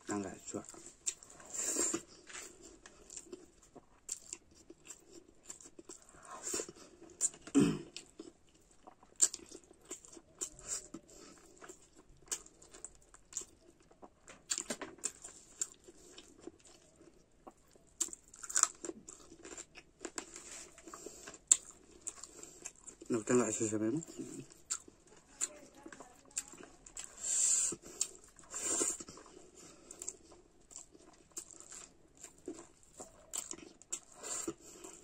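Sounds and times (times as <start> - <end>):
close chewing of food: 0.0 - 35.0.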